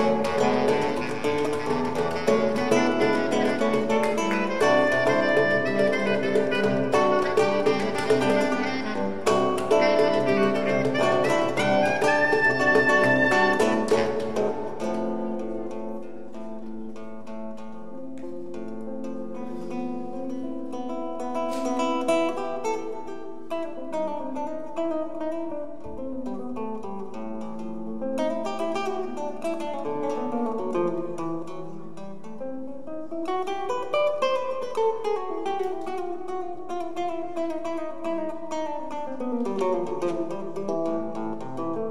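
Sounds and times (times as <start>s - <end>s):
bass clarinet held tones: 0.0s - 15.4s
hand percussion strikes: 0.0s - 17.0s
plucked guitar notes: 0.0s - 41.9s.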